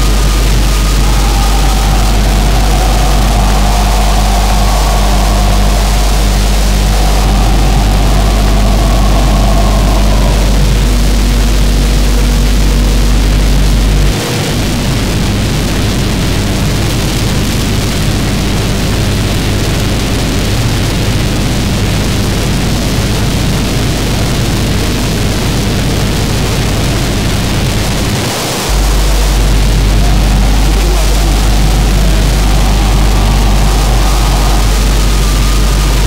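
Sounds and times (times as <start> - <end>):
heavy low rumble: 0.0 - 14.1, 28.7 - 36.0
layered low drone: 0.0 - 14.2, 28.6 - 36.0.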